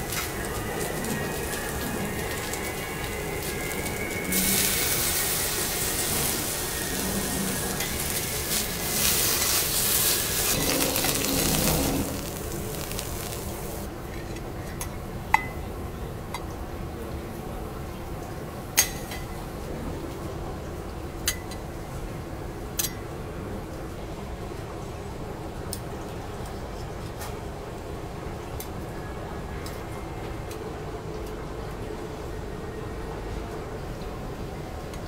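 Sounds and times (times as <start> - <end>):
vegetables sizzling on a griddle: 0.0 - 13.9.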